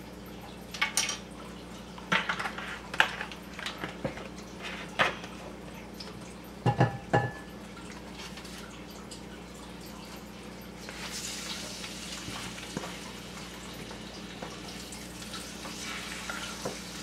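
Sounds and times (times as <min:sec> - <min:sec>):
kitchen items knocking on counter: 0:06.6 - 0:07.4.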